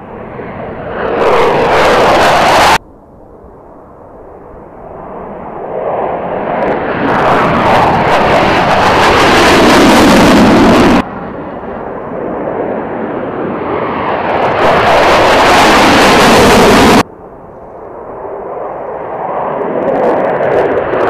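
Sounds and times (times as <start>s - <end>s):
jet engines with afterburner: 0.0s - 21.0s.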